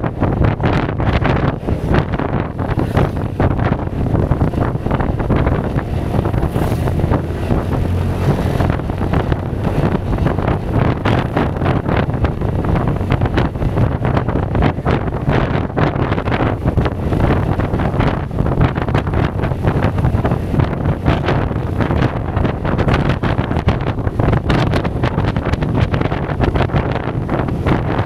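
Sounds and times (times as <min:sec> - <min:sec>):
wind buffeting microphone: 0:00.0 - 0:28.0
scooter engine running: 0:01.9 - 0:26.2.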